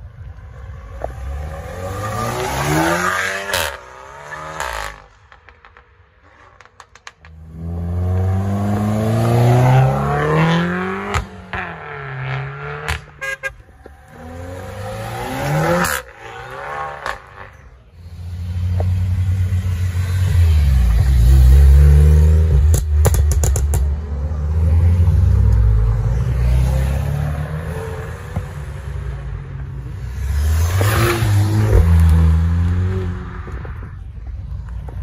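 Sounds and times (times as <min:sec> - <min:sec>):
car engines revving hard: 0:00.7 - 0:05.1, 0:07.3 - 0:33.9.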